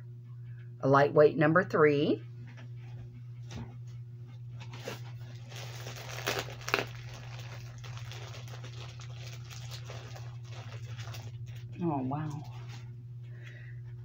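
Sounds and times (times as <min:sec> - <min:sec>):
steady low hum: 0:00.0 - 0:14.0
packaging rustling and crinkling: 0:04.6 - 0:11.8
sharp crackles: 0:05.5 - 0:11.6.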